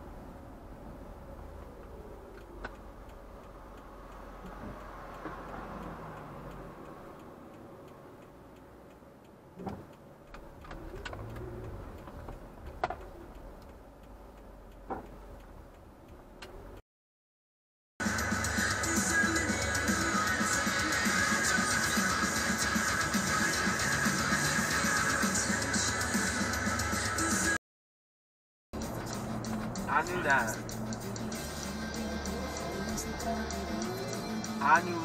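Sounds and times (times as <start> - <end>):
car engine and road noise: 0.0 - 16.8, 18.0 - 27.6, 28.8 - 35.0
faint ticking: 1.3 - 16.8.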